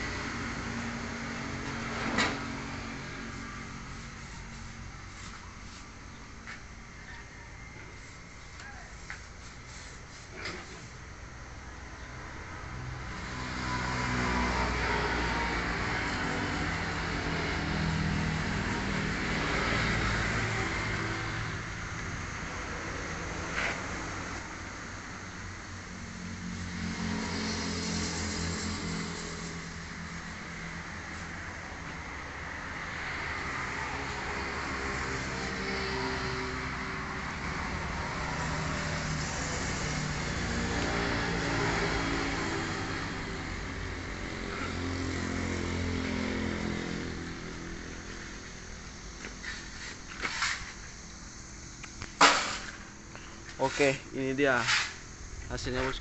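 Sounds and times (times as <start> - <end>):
constant hiss: 0.0 - 13.4, 45.3 - 56.0.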